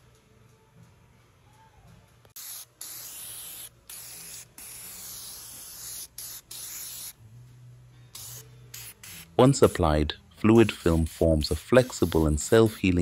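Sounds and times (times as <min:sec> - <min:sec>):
aerosol spray hissing: 0:02.4 - 0:07.2, 0:08.2 - 0:09.4, 0:10.6 - 0:13.0.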